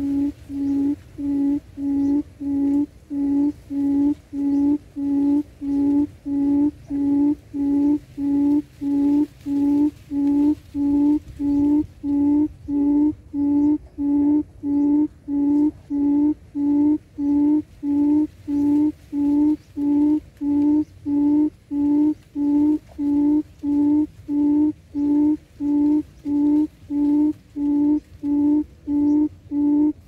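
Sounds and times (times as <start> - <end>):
quail lure call hooting: 0.0 - 30.0.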